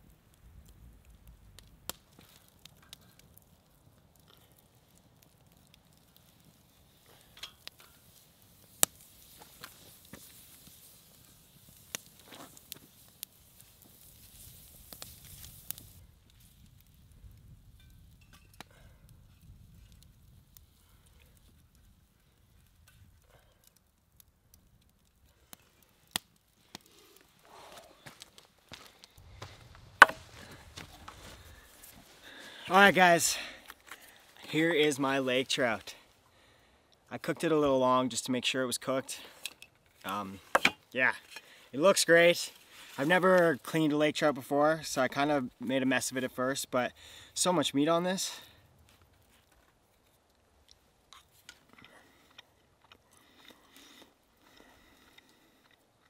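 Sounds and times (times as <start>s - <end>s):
campfire crackling and popping: 0.0s - 56.0s.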